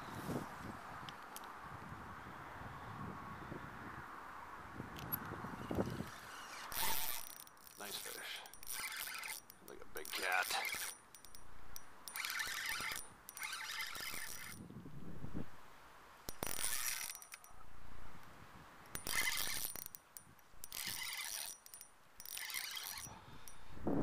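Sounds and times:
fishing reel whirring and ticking: 5.9s - 14.6s, 16.3s - 17.5s, 18.9s - 23.6s.

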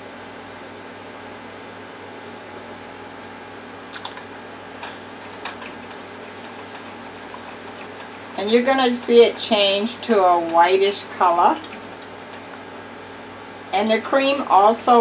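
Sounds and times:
steady hum: 0.0s - 15.0s
whisk scraping a pot: 4.8s - 12.5s.

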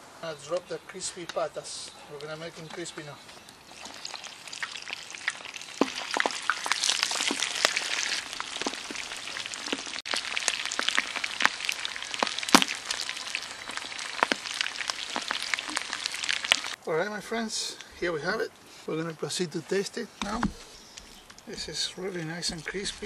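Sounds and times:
deep-frying sizzle: 3.7s - 16.8s
oil popping and crackling: 3.7s - 16.8s, 20.2s - 23.0s.

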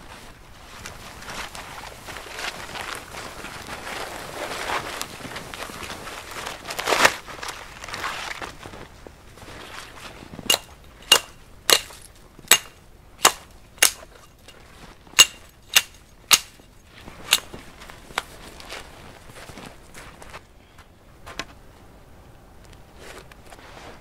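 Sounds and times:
hatchet chopping wood: 10.5s - 14.2s, 15.2s - 16.6s.

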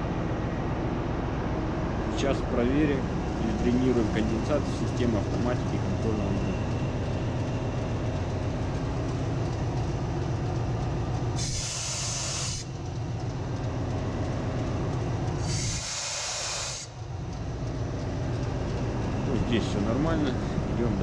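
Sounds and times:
engine room machinery drone: 0.0s - 21.0s
compressed air hissing: 11.4s - 12.7s, 15.4s - 17.0s.

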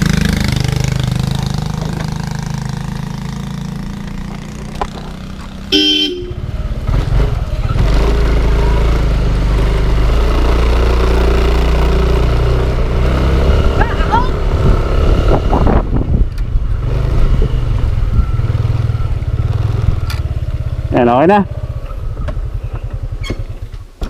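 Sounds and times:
scooter engine revving: 0.0s - 23.6s
scooter engine running: 0.0s - 23.7s
scooter horn toot: 5.7s - 6.5s.

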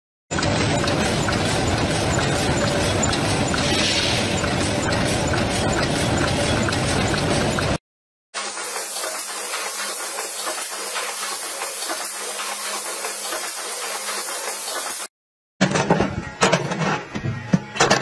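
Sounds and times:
machine hum: 0.4s - 7.8s.

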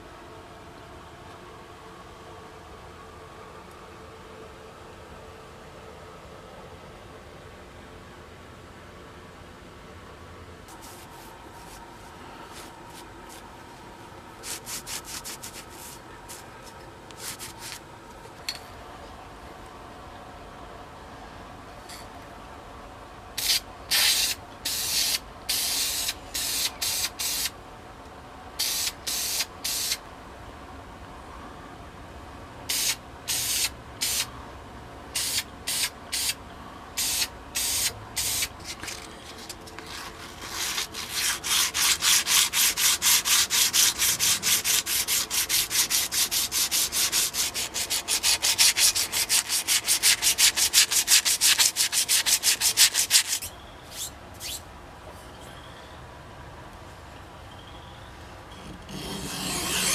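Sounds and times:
sandpaper rubbing on metal: 14.4s - 16.4s, 17.2s - 17.8s, 37.0s - 54.6s, 58.9s - 59.9s.

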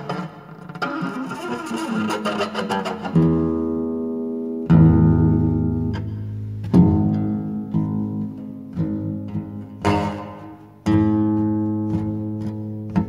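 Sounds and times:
out-of-tune guitar picking: 0.0s - 13.0s
guitar chord ringing: 3.2s - 13.0s.

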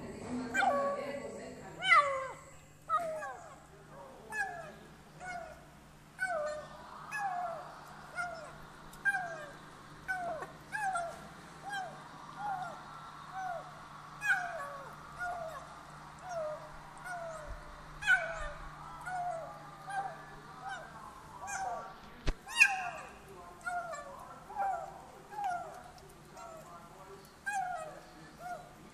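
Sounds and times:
eating clicks: 23.5s - 28.0s.

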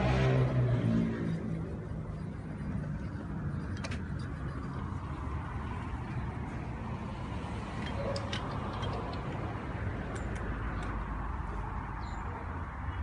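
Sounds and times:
low background rumble: 0.5s - 7.3s.

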